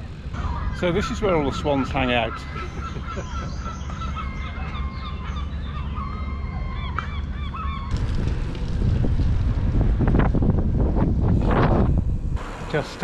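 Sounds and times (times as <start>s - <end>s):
waterfowl calling: 0.4s - 8.0s
wind rumble on microphone: 7.8s - 12.4s.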